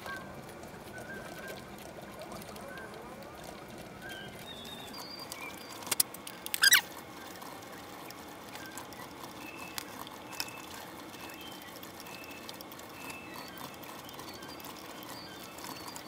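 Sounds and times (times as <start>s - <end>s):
sharp clicks: 5.3s - 6.8s.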